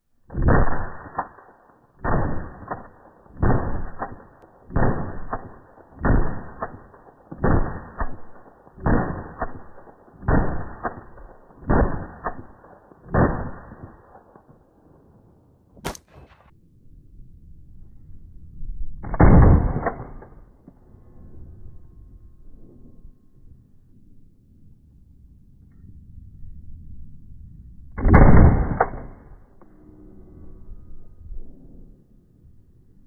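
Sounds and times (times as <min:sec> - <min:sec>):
rifle shots booming: 0:00.3 - 0:14.5, 0:19.0 - 0:20.4, 0:28.0 - 0:29.3
sharp click: 0:28.6 - 0:29.7.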